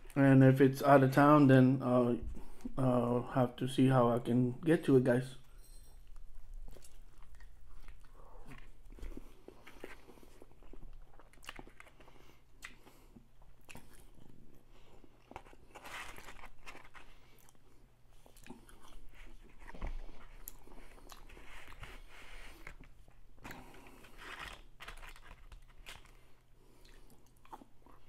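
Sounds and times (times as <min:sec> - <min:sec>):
person chewing crunchy food: 0:06.1 - 0:28.0.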